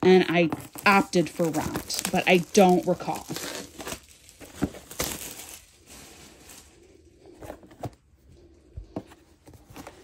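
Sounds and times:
cardboard box rustling: 0.4s - 10.0s.

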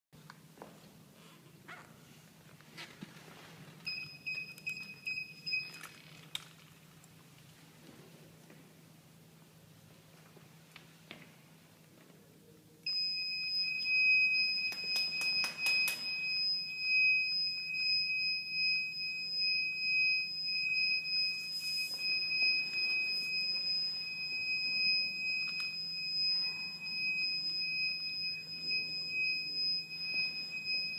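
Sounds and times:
electronic buzzer high-pitched tone: 12.9s - 30.9s.

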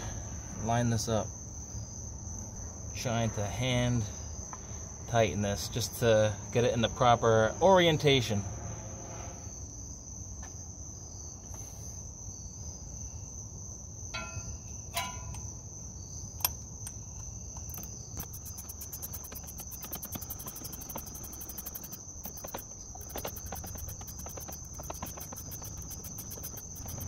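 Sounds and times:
insects trilling: 0.7s - 27.0s
fast pulsing high chirp: 18.2s - 27.0s.

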